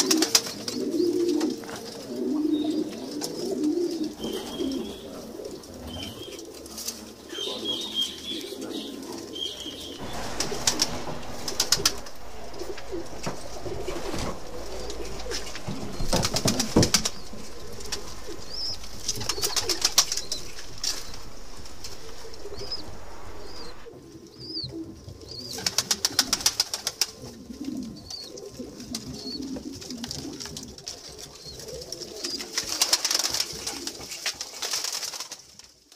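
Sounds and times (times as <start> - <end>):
wings flapping: 0.0 - 0.8, 10.0 - 23.9, 25.6 - 27.2, 32.2 - 35.4
pigeons cooing: 0.0 - 9.6.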